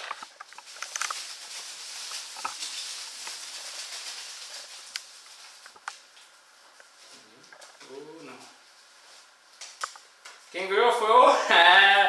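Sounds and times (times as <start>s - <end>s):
paper slips rustling in a bag: 0.0s - 6.1s.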